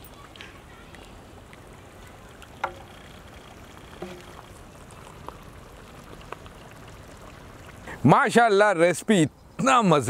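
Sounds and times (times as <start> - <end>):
curry bubbling: 0.6 - 8.1.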